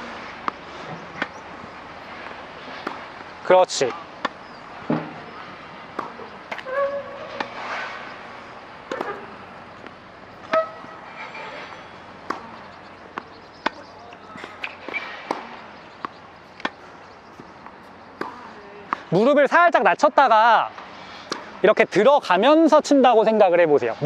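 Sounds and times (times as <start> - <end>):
tennis balls bouncing on court: 0.4 - 7.6, 8.8 - 11.0, 12.0 - 19.3, 21.2 - 21.5
tennis balls struck with rackets: 0.4 - 7.8, 8.8 - 11.0, 12.0 - 19.3, 21.2 - 21.6.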